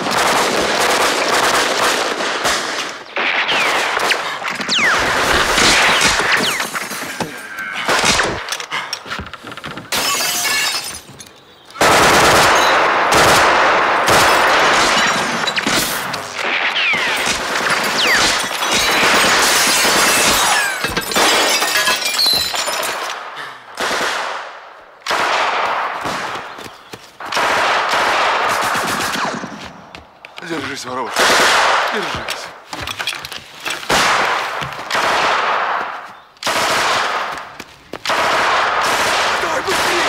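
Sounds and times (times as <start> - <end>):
automatic gunfire bursts: 11.8 - 15.2.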